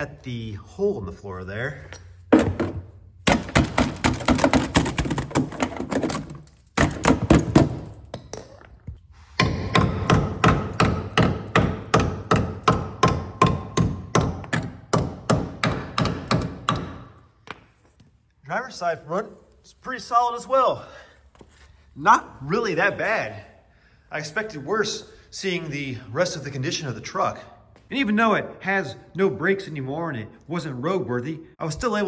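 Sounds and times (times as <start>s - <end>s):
hammer striking steel frame: 9.3s - 17.6s.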